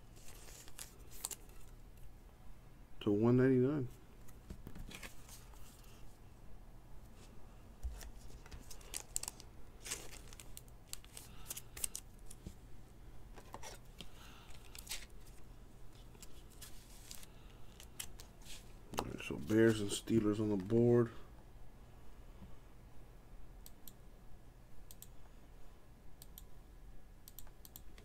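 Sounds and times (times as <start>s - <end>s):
plastic card sleeve scraping: 0.1s - 1.7s, 7.9s - 12.4s, 13.4s - 18.7s.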